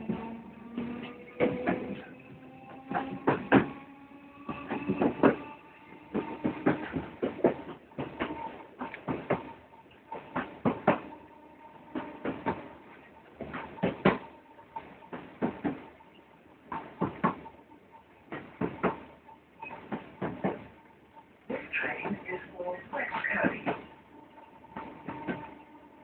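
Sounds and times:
train wheels knocking over track: 0:00.0 - 0:16.0, 0:16.6 - 0:17.5, 0:18.3 - 0:20.7, 0:24.6 - 0:26.0
faint steady whine: 0:00.0 - 0:26.0.

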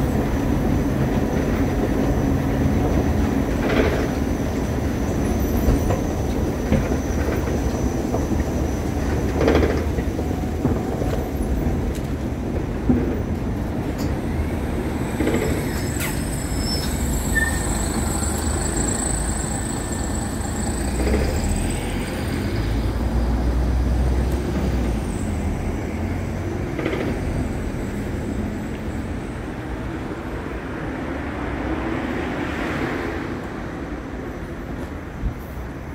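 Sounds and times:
thin high squeal: 0:15.6 - 0:21.1.

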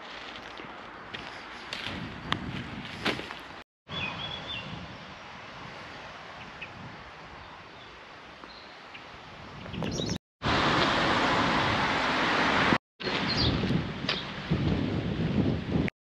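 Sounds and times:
footstep on dirt path: 0:00.0 - 0:03.6
outdoor background noise: 0:00.0 - 0:15.9
bird chirp: 0:03.9 - 0:04.8, 0:07.4 - 0:10.2, 0:13.0 - 0:14.2.

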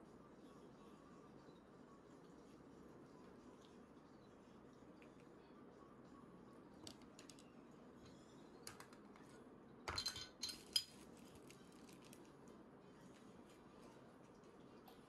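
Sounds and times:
tableware clinking: 0:09.9 - 0:11.0.

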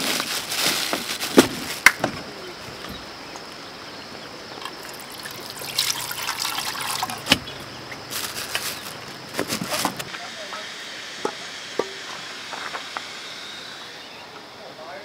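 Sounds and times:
liquid pouring into metal pot: 0:04.6 - 0:07.3.

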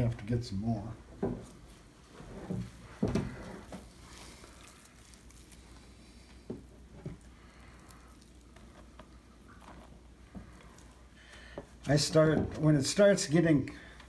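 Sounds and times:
hands squishing wet dough: 0:02.6 - 0:12.8.

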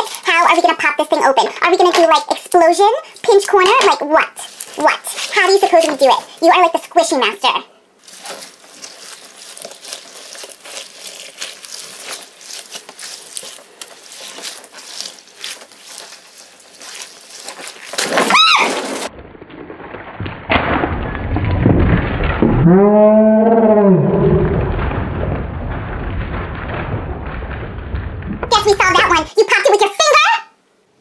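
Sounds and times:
water beads crackling and squishing: 0:00.0 - 0:19.1, 0:28.4 - 0:30.1
balloon bursting: 0:08.0 - 0:19.1
balloon squeak: 0:08.0 - 0:19.1
beads pouring out: 0:08.0 - 0:19.1.

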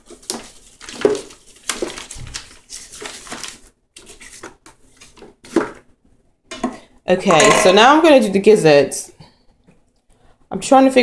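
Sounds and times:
metal kitchenware clattering: 0:07.2 - 0:08.1.

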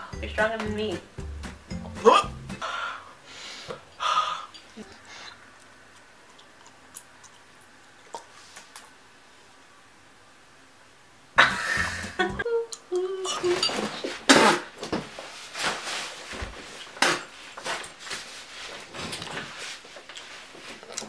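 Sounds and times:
woman whimpering cries: 0:12.3 - 0:13.7.

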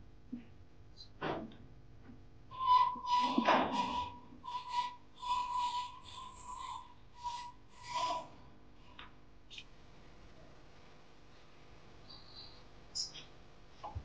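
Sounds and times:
breathy whistle-like notes: 0:02.5 - 0:08.2, 0:12.0 - 0:13.2.

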